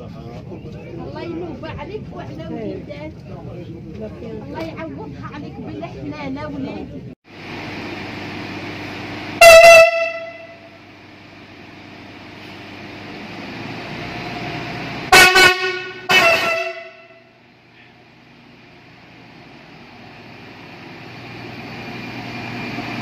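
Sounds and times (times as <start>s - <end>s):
train engine running: 7.0s - 23.0s
train horn blasts: 9.4s - 10.9s, 15.1s - 17.4s.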